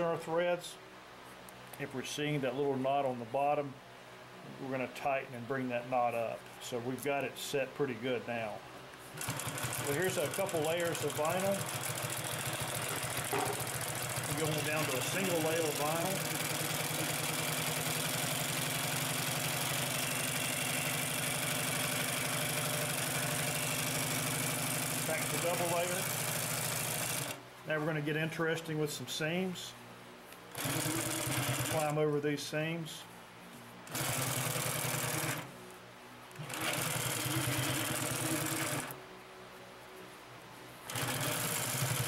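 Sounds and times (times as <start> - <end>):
industrial sewing machine running: 9.2 - 27.4, 30.5 - 31.9, 33.9 - 35.5, 36.4 - 39.0, 40.9 - 42.0.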